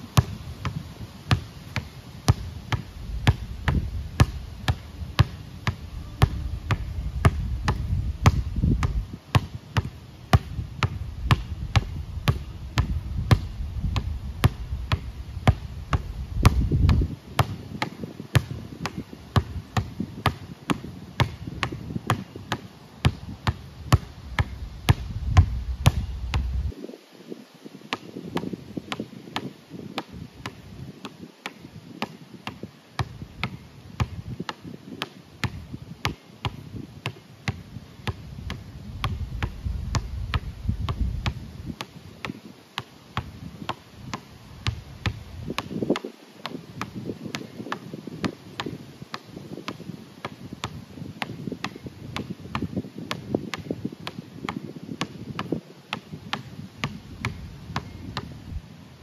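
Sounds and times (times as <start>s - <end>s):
basketball bouncing on court: 0.2s - 26.6s, 32.0s - 34.2s, 35.4s - 41.4s, 50.6s - 54.2s, 55.0s - 58.3s.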